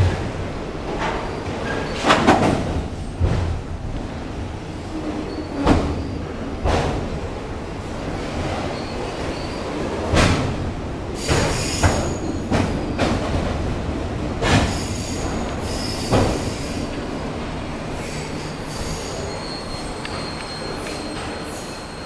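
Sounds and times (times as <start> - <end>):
train cars clunking: 0.0 - 22.0
train wheels squealing: 4.9 - 6.4, 8.6 - 9.8, 11.2 - 13.2, 14.7 - 16.9, 17.9 - 22.0.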